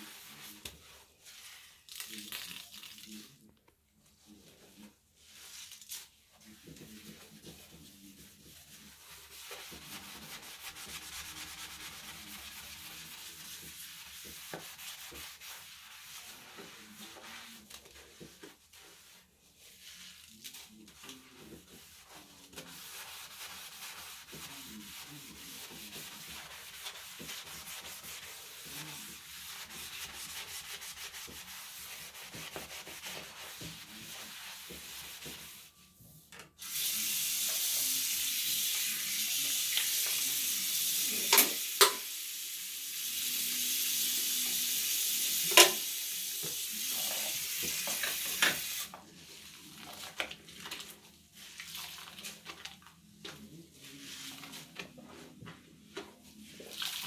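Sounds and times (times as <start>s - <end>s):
sponge scrubbing sink: 0.0s - 2.0s, 4.1s - 42.1s, 42.9s - 57.0s
wet sponge squelching: 0.0s - 3.3s, 4.2s - 35.8s, 46.4s - 57.0s
tap water running into basin: 36.6s - 49.0s.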